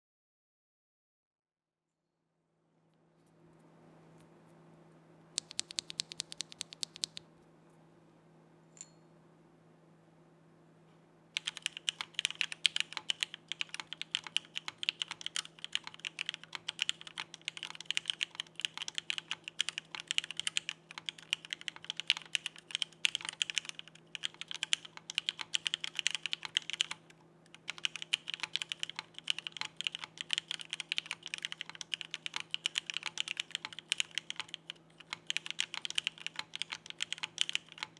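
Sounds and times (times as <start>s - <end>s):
faint low hum: 2.4s - 37.9s
mechanical keyboard typing: 5.4s - 7.2s, 11.4s - 37.9s.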